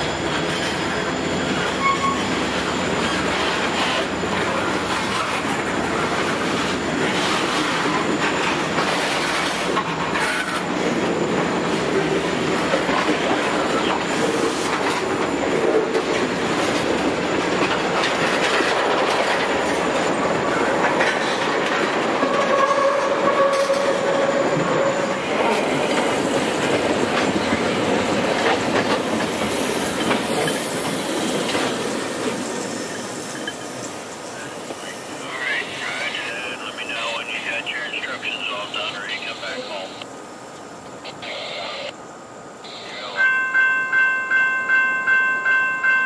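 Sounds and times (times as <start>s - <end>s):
steel wheels rumbling on rail: 0.0s - 37.2s
wheel squeal: 1.7s - 2.4s
clickety-clack over rail joints: 3.0s - 32.6s.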